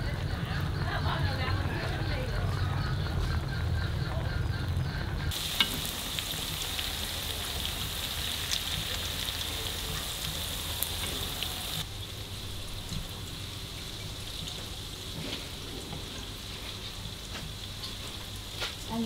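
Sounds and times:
tofu sizzling in hot oil: 0:05.3 - 0:19.0.

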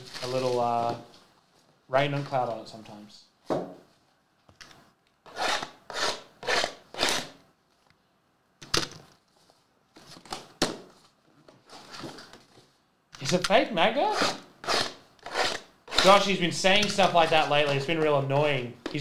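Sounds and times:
cardboard and card packs rustling: 0:00.0 - 0:02.5, 0:09.1 - 0:13.4.

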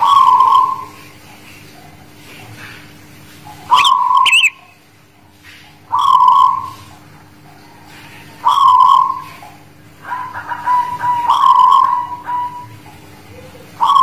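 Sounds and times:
dove cooing: 0:00.0 - 0:01.1, 0:03.7 - 0:04.6, 0:05.9 - 0:07.0, 0:07.9 - 0:14.0.

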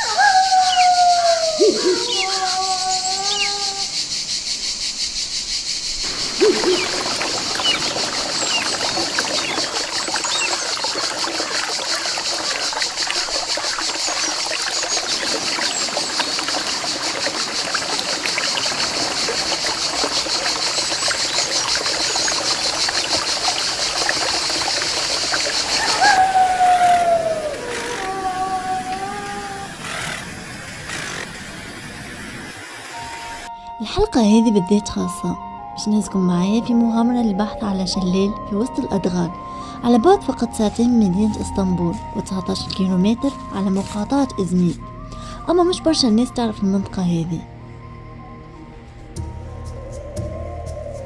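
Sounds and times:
stream water splashing: 0:06.0 - 0:33.5.

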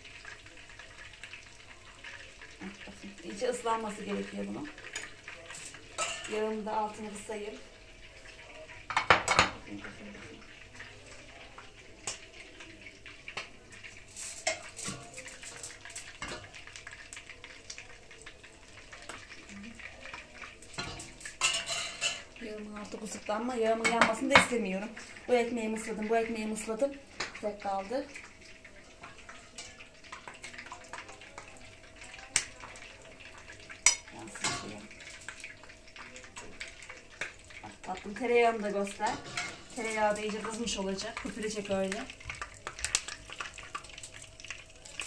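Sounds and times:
metal ladle clinking on pot: 0:06.0 - 0:06.4, 0:20.8 - 0:22.3.

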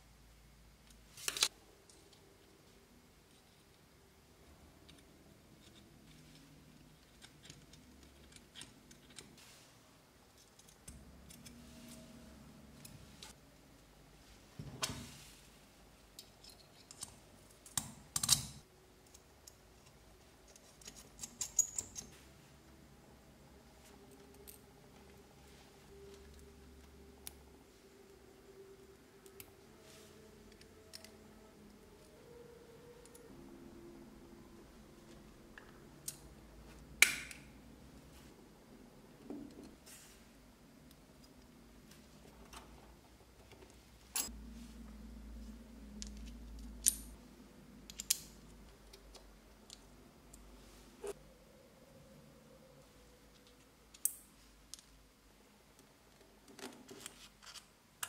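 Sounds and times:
faint low hum: 0:00.0 - 0:58.0
metal parts clicking and clinking: 0:16.1 - 0:22.1, 0:43.6 - 0:44.3, 0:46.0 - 0:47.2, 0:47.9 - 0:49.0.

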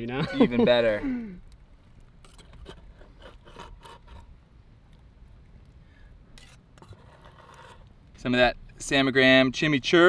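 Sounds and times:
knife scraping cutting board: 0:02.2 - 0:04.3, 0:06.4 - 0:07.9.

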